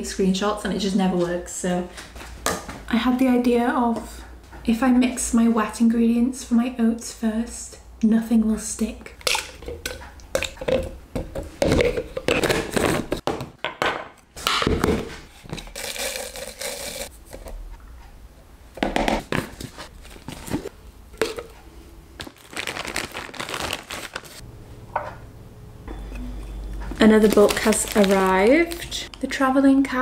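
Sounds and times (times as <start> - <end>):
packaging crinkling and rustling: 19.5 - 21.6, 22.2 - 24.4, 26.8 - 29.1.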